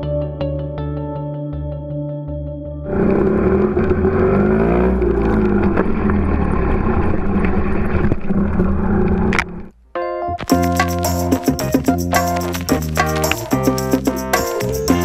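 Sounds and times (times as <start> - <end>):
music: 0.0 - 2.9, 10.0 - 15.0
motorcycle engine revving: 2.9 - 9.7.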